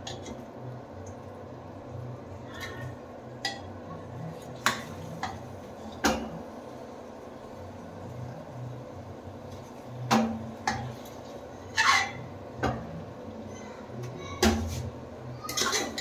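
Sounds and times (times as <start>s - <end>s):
ladle scraping pot: 11.7s - 12.3s, 15.5s - 16.0s.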